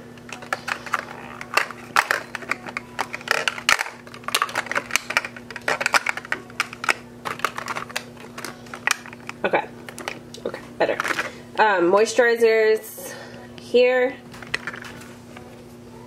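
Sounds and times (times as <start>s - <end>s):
faint steady hum: 0.0s - 16.0s
plastic makeup bottles clicking: 0.3s - 10.4s.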